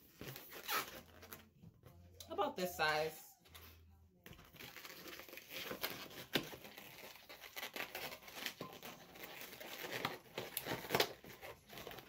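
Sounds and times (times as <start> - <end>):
rubber balloon squeaks: 0.0 - 1.5, 4.6 - 12.0
crinkly balloon handling: 0.0 - 2.0, 3.5 - 12.0.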